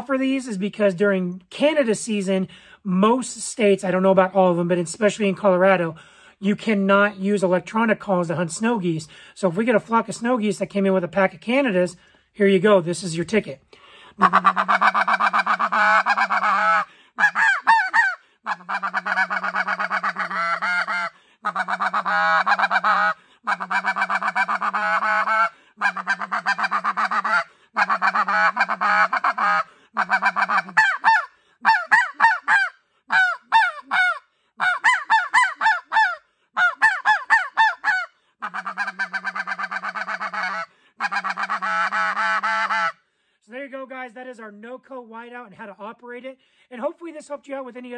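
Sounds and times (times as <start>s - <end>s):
goose call honks: 14.2s - 43.0s.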